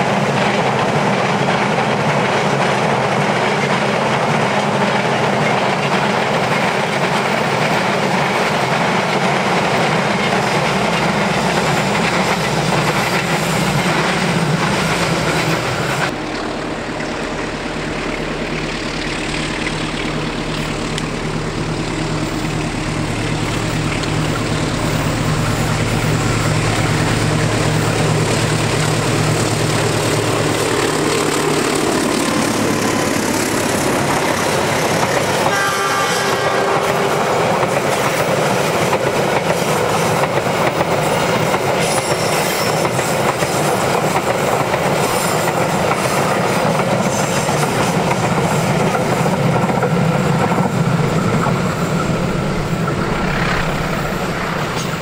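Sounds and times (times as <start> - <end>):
diesel locomotive engine humming: 0.0 - 55.0
train wheels clattering on rails: 0.0 - 55.0
train horn blast: 35.3 - 37.8.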